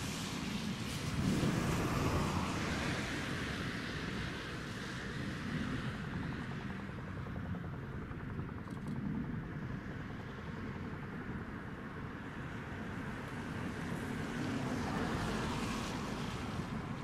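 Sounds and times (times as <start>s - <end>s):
wind noise on microphone: 0.0s - 7.1s.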